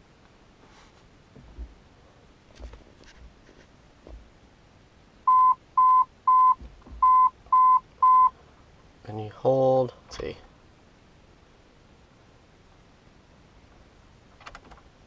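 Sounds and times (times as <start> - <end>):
short high dashboard beeps: 5.3 - 8.3.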